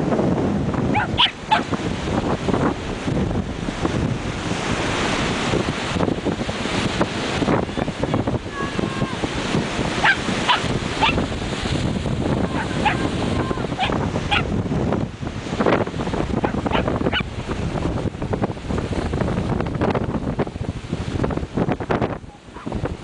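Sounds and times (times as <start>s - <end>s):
surf: 0.0s - 23.0s
wind noise on microphone: 0.0s - 23.0s
dog barking high-pitched: 0.9s - 1.7s, 10.0s - 11.2s, 12.5s - 13.1s, 13.8s - 14.5s, 16.4s - 17.3s.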